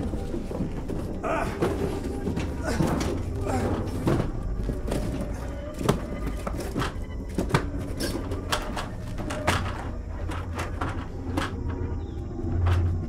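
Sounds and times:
knocking and clattering in shed: 0:00.0 - 0:13.0.

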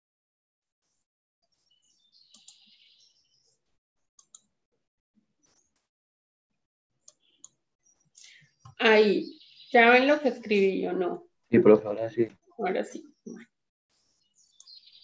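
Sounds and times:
computer mouse clicks: 0:02.3 - 0:02.7, 0:04.2 - 0:04.5, 0:07.0 - 0:07.6.

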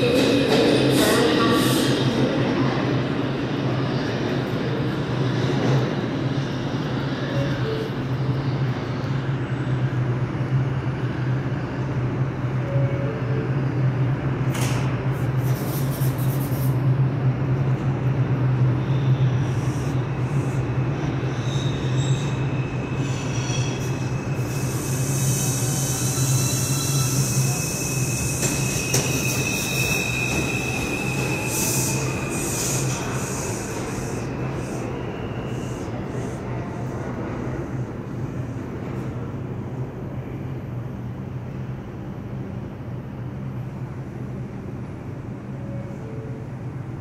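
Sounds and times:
subway train humming: 0:00.0 - 0:47.0
train whine and hiss: 0:00.0 - 0:47.0
wheel squeal: 0:21.4 - 0:33.2.

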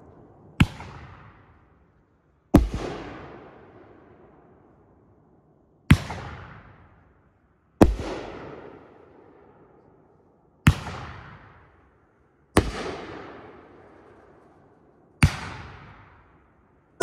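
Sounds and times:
firework bangs with rumbling echo: 0:15.2 - 0:16.2.

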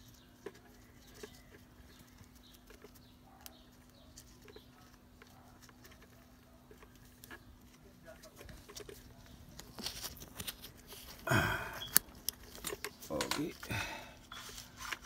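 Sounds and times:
parts clicking and tapping: 0:11.8 - 0:13.7.

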